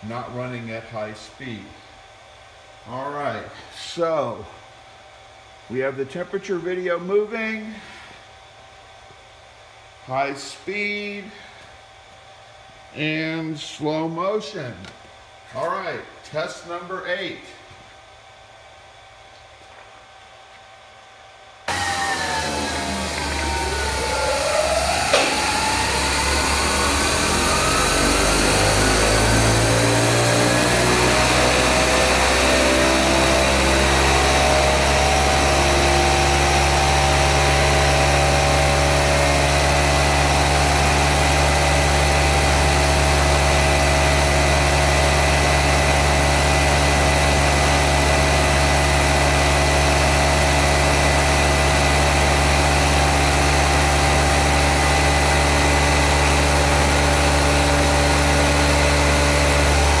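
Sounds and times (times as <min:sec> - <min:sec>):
electric motor whine: 0:21.6 - 1:00.0.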